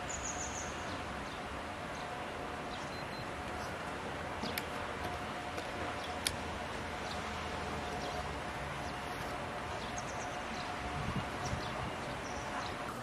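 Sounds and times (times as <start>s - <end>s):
electric locomotive humming: 0.0s - 13.0s.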